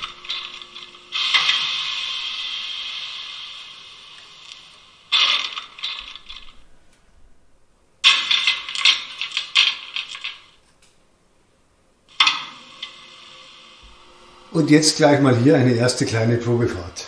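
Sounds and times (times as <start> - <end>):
clicks and rattles: 8.1 - 11.0.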